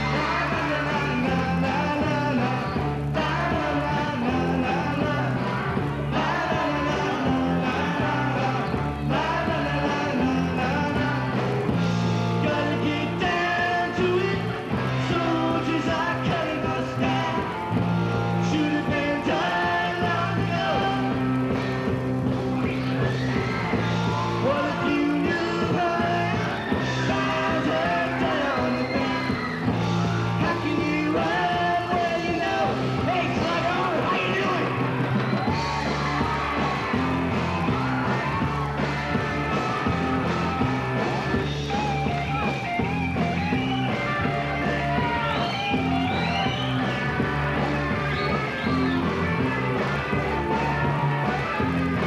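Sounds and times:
man singing lead vocals: 0.0s - 17.6s, 18.4s - 21.3s, 24.4s - 34.8s
drum kit: 0.0s - 52.0s
rock band playing: 0.0s - 52.0s.

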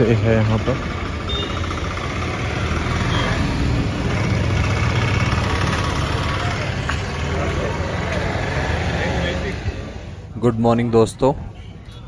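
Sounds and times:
vehicle engine running: 0.0s - 9.6s
traffic noise: 0.0s - 12.0s.

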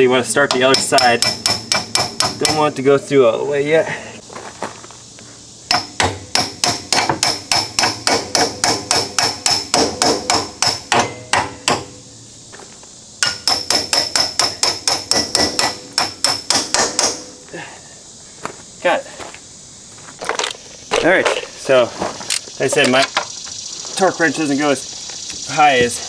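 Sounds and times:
hammer striking metal: 0.4s - 2.7s, 5.7s - 12.0s, 13.2s - 17.4s.

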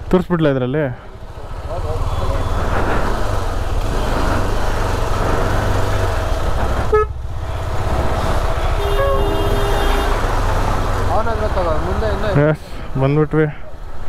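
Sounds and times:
vehicle horn: 6.9s - 7.2s, 8.6s - 10.4s
short horn toot: 8.6s - 10.2s.

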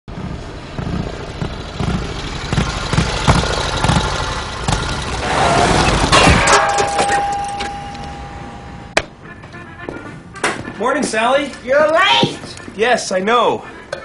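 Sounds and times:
engine knocking: 0.1s - 5.2s
engine running: 0.1s - 9.0s
steady tone: 6.3s - 9.8s.

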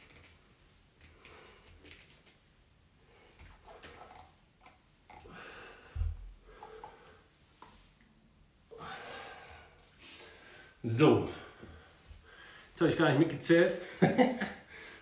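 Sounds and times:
man breathing hard: 5.2s - 7.3s, 8.7s - 12.8s, 14.6s - 15.0s.

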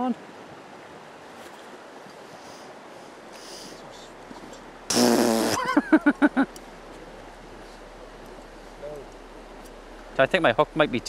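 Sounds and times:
river rushing: 0.0s - 11.0s
man laughing: 5.5s - 6.6s.

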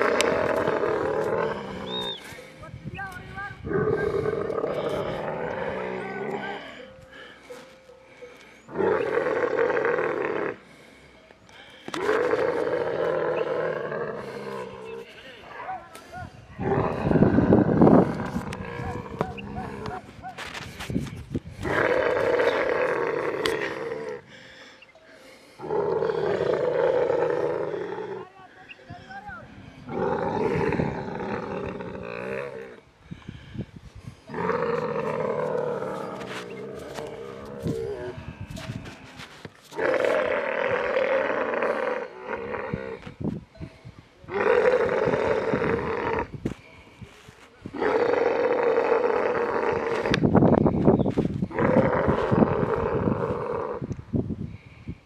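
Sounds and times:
camel roaring: 0.0s - 2.3s, 3.6s - 7.3s, 8.7s - 10.7s, 11.9s - 15.6s, 16.6s - 20.6s, 21.6s - 24.3s, 25.6s - 28.3s, 29.6s - 32.8s, 34.3s - 43.2s, 44.3s - 46.4s, 47.7s - 50.4s, 51.4s - 54.0s.

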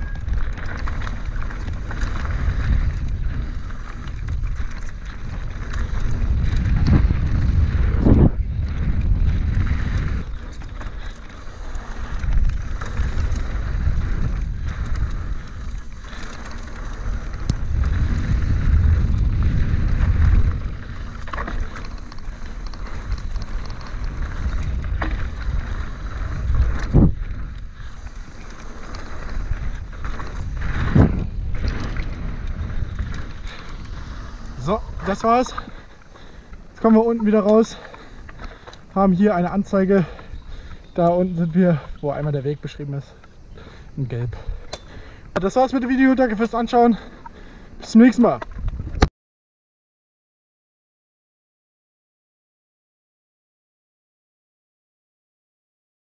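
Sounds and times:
bike knocking on bumps: 0.0s - 41.9s
bike tyres rolling on dirt: 0.0s - 49.1s
wind buffeting microphone: 0.0s - 49.1s.

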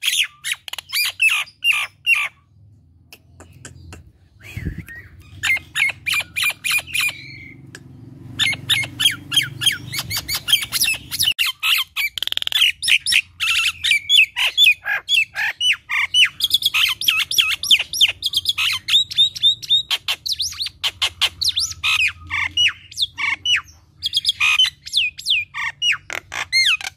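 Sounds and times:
myna squawking and chattering: 3.1s - 19.2s.

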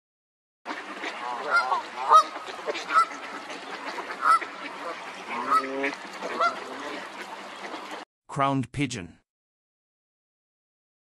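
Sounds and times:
ducks calling: 0.7s - 8.0s.

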